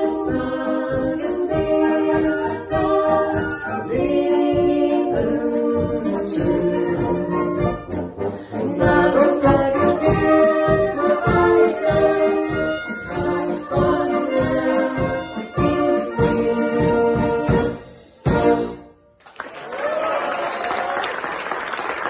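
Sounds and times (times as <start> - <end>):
vocalists singing: 0.0 - 7.6, 8.2 - 17.8
tuba oom-pah beat: 0.0 - 19.0
wind band playing a polka: 0.0 - 19.0.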